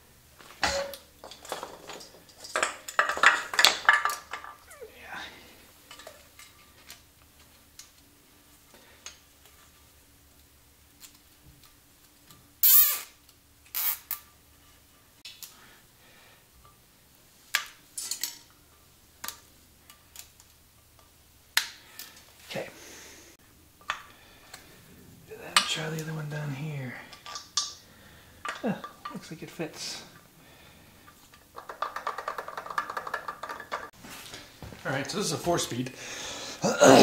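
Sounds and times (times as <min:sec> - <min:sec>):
metal parts clinking and rattling: 0:00.6 - 0:04.9, 0:31.2 - 0:33.9.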